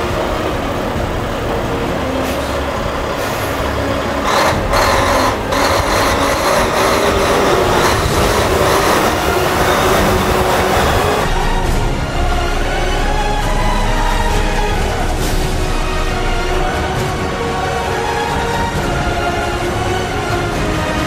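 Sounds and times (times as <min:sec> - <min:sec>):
loud hissing rush: 0:00.0 - 0:12.2
diesel truck engine driving past: 0:00.0 - 0:16.4.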